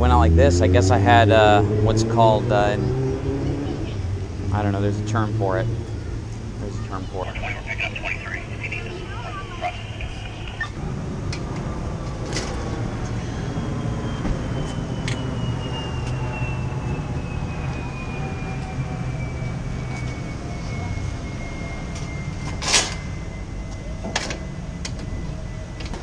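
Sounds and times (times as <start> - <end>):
low vehicle rumble: 0.0 - 26.0
faint high whine: 15.1 - 26.0.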